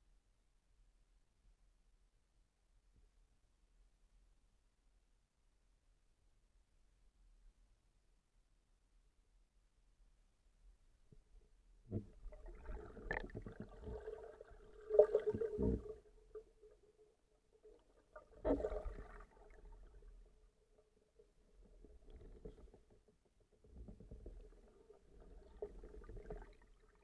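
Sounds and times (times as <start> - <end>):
underwater knocks: 11.9 - 14.2, 14.9 - 16.4
underwater gurgling: 11.9 - 20.6, 24.3 - 27.0.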